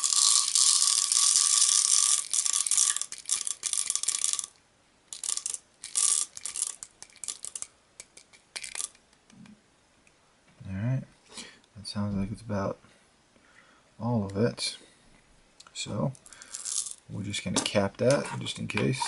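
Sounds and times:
pellets pouring into plastic bottle: 16.4 - 17.0.

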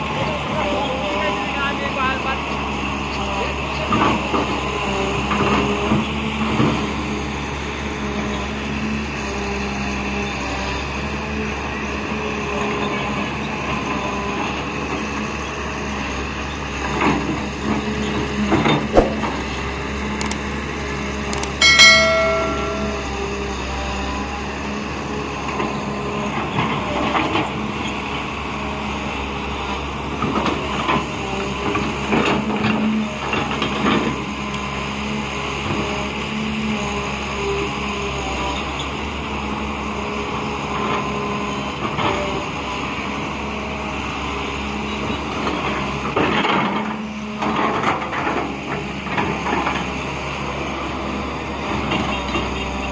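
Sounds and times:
sharp clicks: 20.2 - 20.4, 21.4 - 21.6
short ringing chime: 21.4 - 23.6.

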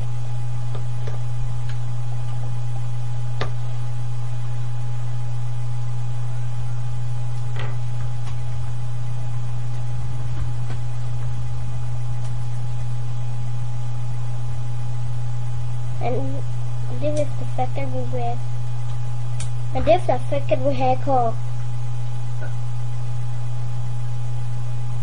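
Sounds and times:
low electrical hum: 0.0 - 25.0.

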